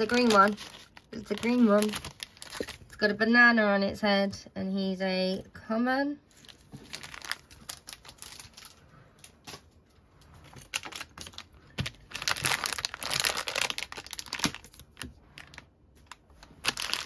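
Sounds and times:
foil packet crinkling: 0.0s - 3.0s, 6.3s - 9.3s, 10.5s - 17.0s.

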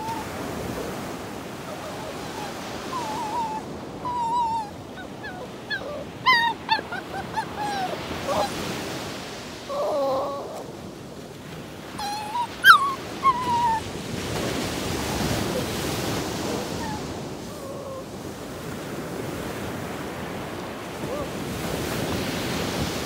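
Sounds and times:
animal whining calls: 0.0s - 10.7s, 12.0s - 14.0s, 15.1s - 18.2s, 21.0s - 21.5s.

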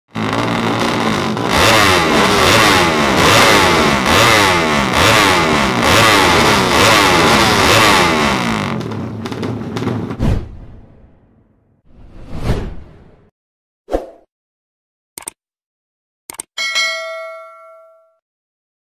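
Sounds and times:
motorcycle engine revving: 0.1s - 10.2s.

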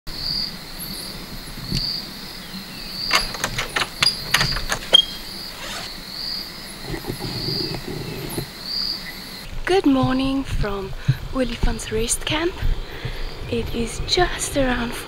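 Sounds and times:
crickets chirping: 0.1s - 9.5s
metal door handle and latch clicking: 3.1s - 5.7s.

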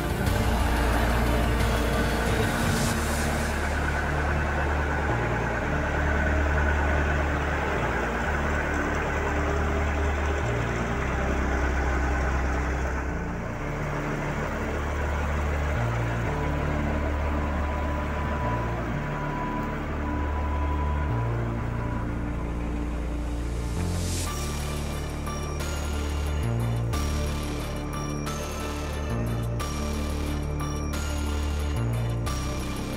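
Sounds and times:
truck engine idling: 0.0s - 32.9s.

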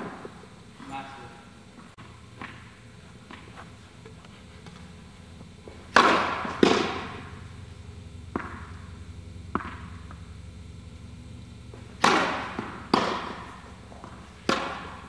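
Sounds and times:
tennis ball bouncing on court: 5.6s - 7.6s, 8.2s - 10.3s, 11.7s - 15.0s
tennis ball struck by racket: 5.9s - 7.4s, 8.3s - 8.8s, 9.5s - 10.2s, 11.8s - 15.0s.

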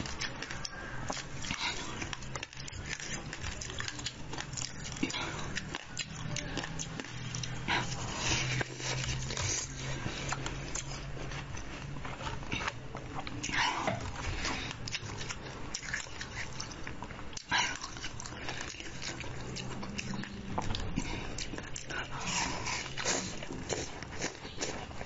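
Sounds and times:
ice being bitten and chewed: 12.5s - 25.0s.

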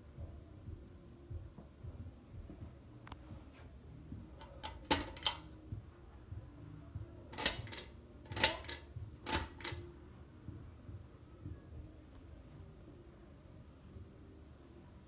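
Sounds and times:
pull-chain switch clicks: 4.4s - 5.5s, 7.4s - 9.8s.

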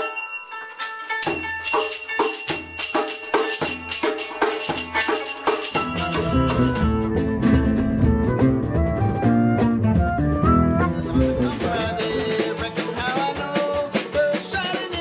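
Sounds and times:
folk band with guitar and bass: 6.0s - 15.0s.

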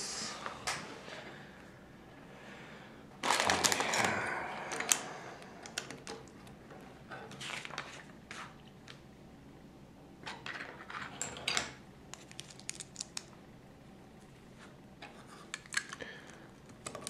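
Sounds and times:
plastic bricks rustling and clattering: 3.2s - 4.0s.

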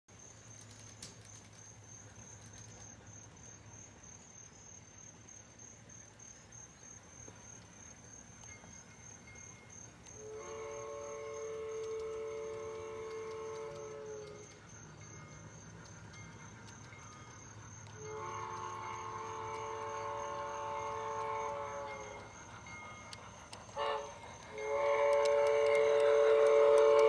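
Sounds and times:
cricket chirping trill: 0.1s - 27.0s
steam whistle blast from speaker: 10.2s - 14.4s, 18.0s - 22.2s, 23.8s - 27.0s.

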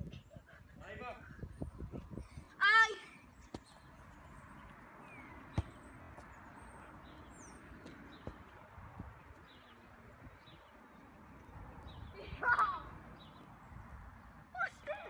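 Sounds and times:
football being kicked: 5.5s - 5.9s, 7.8s - 8.5s.

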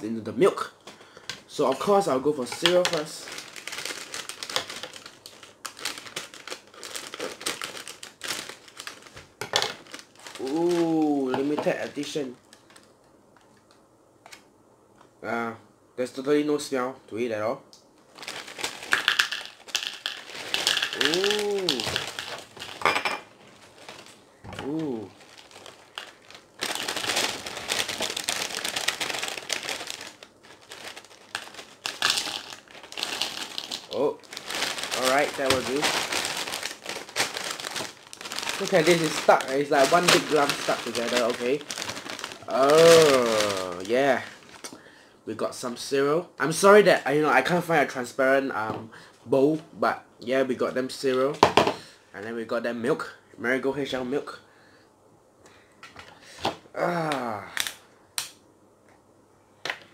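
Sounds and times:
plastic bag crinkling: 1.2s - 12.9s, 18.1s - 44.8s
cereal pouring into bowl: 18.6s - 22.8s, 31.0s - 44.2s.

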